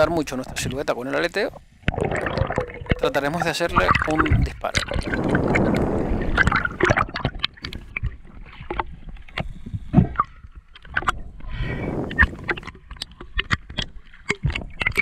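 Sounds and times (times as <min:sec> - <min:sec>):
seawater splashing: 0:02.0 - 0:08.9
sharp clicks and pops: 0:03.8 - 0:11.2, 0:12.0 - 0:15.0.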